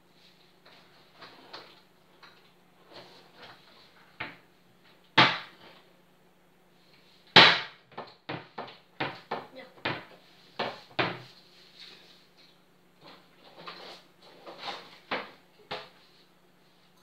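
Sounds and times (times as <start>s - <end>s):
cupboard bangs: 7.4s - 11.2s.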